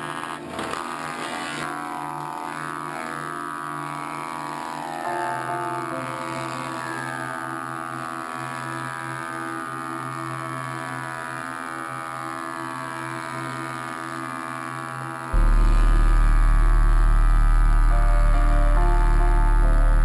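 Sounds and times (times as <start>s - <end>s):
planer humming: 0.0s - 9.5s.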